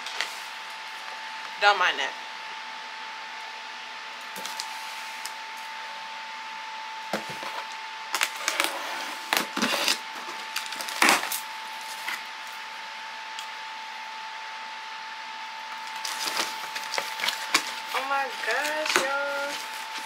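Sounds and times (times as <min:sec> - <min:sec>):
cardboard rustling and ripping: 0:07.2 - 0:12.2, 0:15.8 - 0:20.0.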